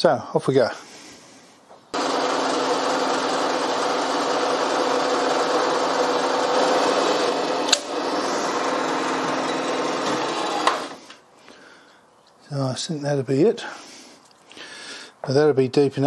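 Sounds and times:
milling machine drilling metal: 2.0 - 11.0
sharp click: 7.7 - 7.9.

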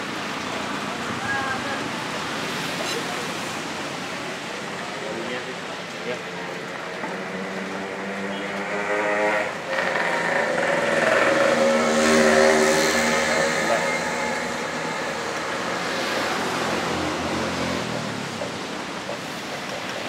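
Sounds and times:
vehicle engine passing: 7.0 - 19.4.

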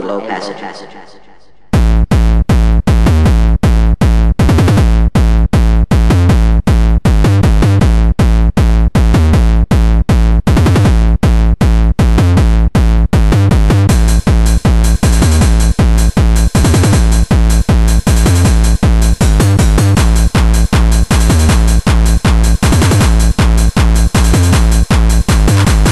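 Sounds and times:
electronic dance music: 0.0 - 25.9.

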